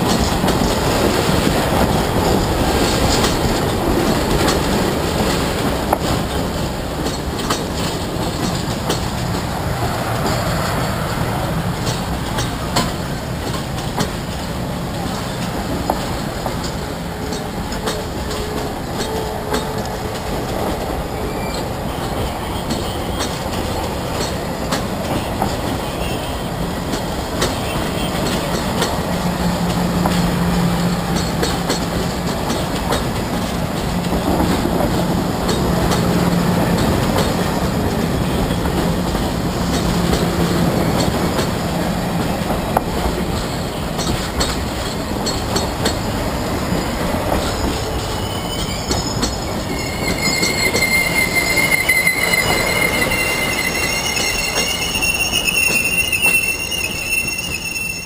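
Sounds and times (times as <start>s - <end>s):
train wheels clattering on rails: 0.0s - 58.0s
train wheels squealing: 8.9s - 13.0s, 16.6s - 29.1s, 43.2s - 58.0s.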